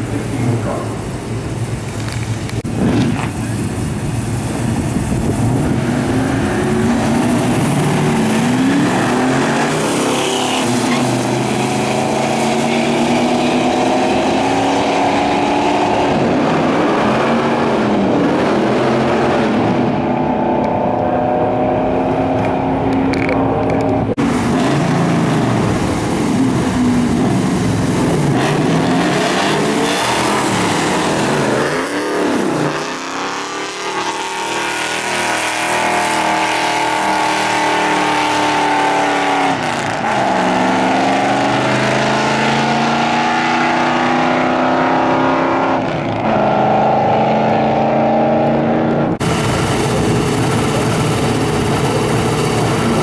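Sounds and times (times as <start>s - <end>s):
cars racing at full throttle: 0.0s - 53.0s.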